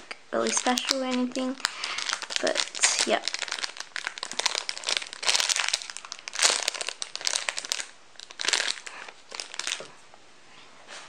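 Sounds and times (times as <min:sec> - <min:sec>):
plastic bag crinkling: 0:00.3 - 0:09.9.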